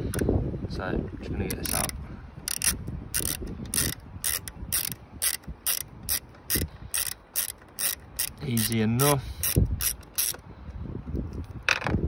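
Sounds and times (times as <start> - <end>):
hand ratchet clicking: 1.5 - 10.4.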